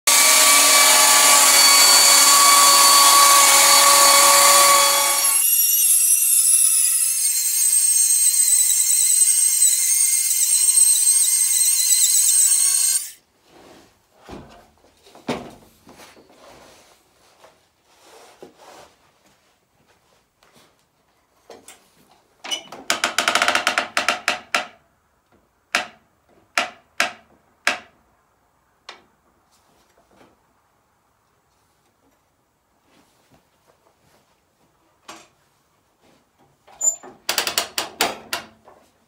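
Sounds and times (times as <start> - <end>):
sawmill saw running: 0.1 - 13.2
wooden boards knocking: 22.9 - 24.8.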